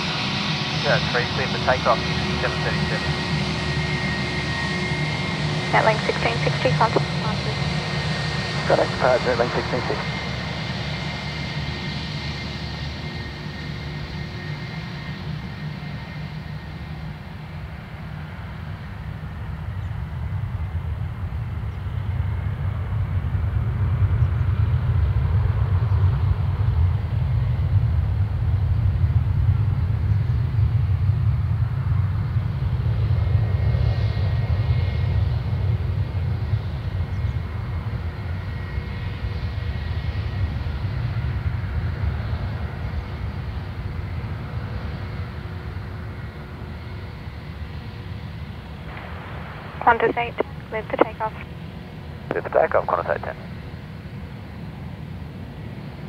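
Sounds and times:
jet engines rumbling: 0.0s - 56.0s
faint high whine: 0.8s - 7.6s, 8.6s - 10.1s, 48.9s - 53.6s.

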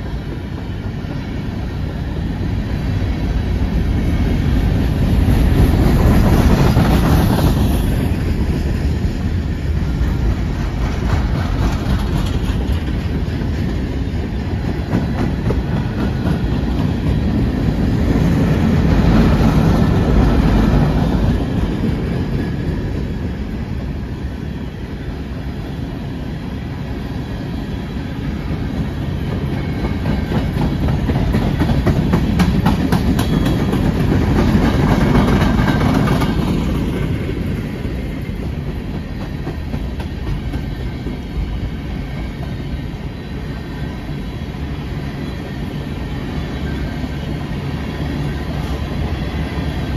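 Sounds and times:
freight train rolling past: 0.0s - 49.9s
wheels clickety-clack: 9.8s - 23.5s, 28.5s - 42.6s.

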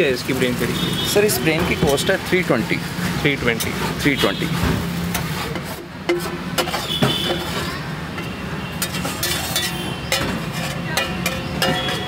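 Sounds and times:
metal spatula scraping iron pan: 3.0s - 12.0s.

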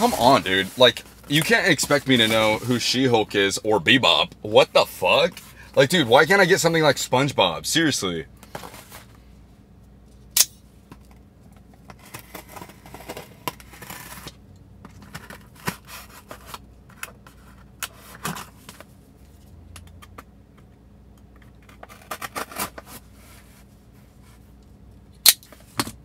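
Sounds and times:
cardboard being handled: 0.0s - 2.8s.

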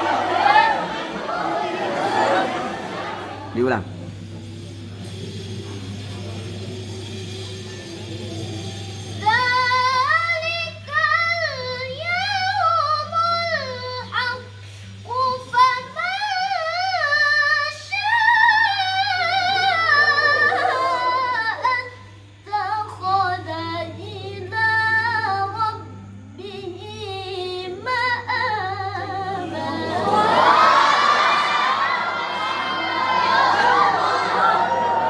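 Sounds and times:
steady low hum: 0.0s - 35.0s
woman reciting melodically: 9.2s - 30.5s.

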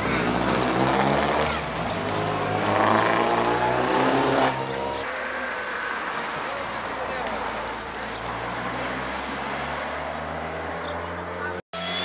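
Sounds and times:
rally car engine revving past: 0.1s - 4.8s.

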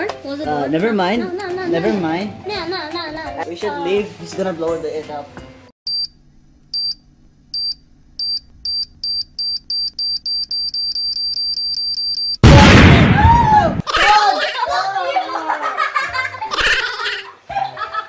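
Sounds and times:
high-pitched countdown beeps: 7.6s - 12.4s
loud explosion: 12.4s - 13.8s.

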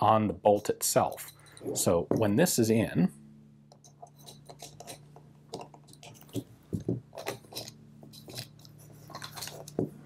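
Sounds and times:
small metallic clicks and scrapes: 3.7s - 9.8s.

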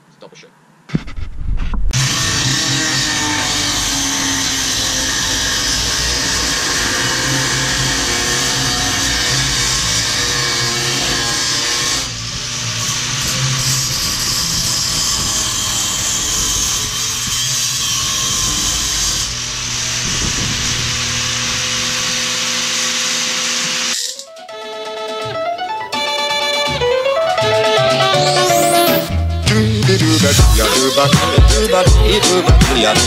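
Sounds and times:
power grinder on metal: 2.0s - 24.3s.

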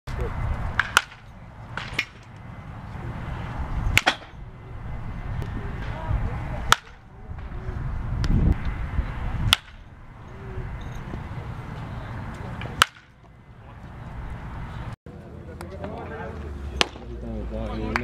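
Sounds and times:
bat cracking ball: 0.7s - 2.4s, 3.9s - 4.4s, 6.7s - 7.0s, 9.4s - 9.8s, 12.6s - 13.1s, 16.8s - 17.1s.

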